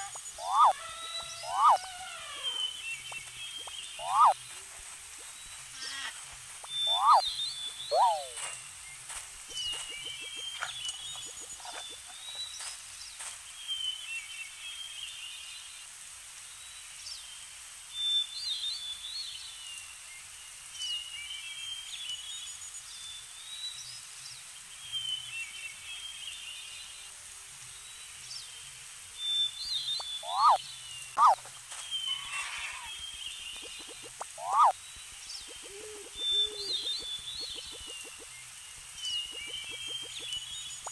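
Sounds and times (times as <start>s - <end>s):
birds twittering: 0.0s - 4.6s, 5.2s - 12.8s, 29.4s - 40.9s
outdoor ambience hiss: 0.0s - 40.9s.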